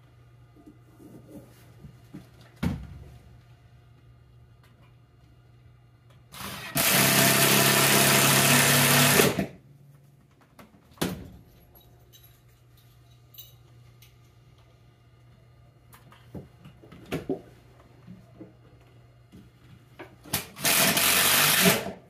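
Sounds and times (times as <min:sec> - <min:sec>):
power drill running: 0:06.3 - 0:09.5, 0:20.4 - 0:22.0.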